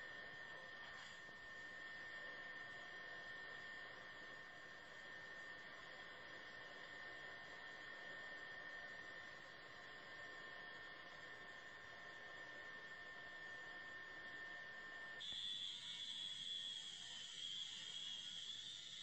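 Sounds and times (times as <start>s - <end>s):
high-pitched whine: 14.3s - 19.0s.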